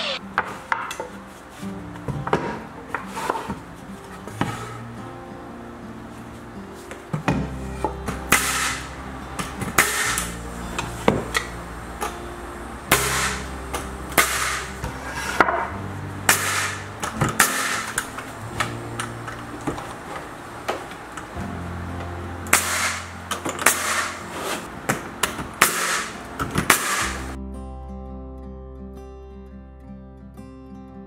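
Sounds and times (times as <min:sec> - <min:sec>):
background music: 0:00.0 - 0:31.0
nails hammered into wood: 0:08.3 - 0:08.9, 0:09.8 - 0:10.3, 0:12.9 - 0:14.7, 0:16.3 - 0:18.7, 0:22.5 - 0:24.2, 0:24.9 - 0:27.3.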